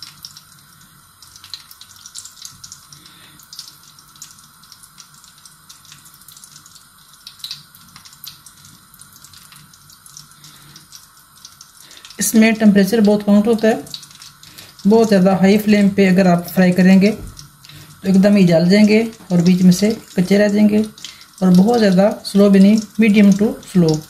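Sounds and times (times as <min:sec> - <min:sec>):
gas burner hiss: 0:00.0 - 0:05.8, 0:06.8 - 0:13.0
oil ticking and crackling: 0:00.0 - 0:24.0.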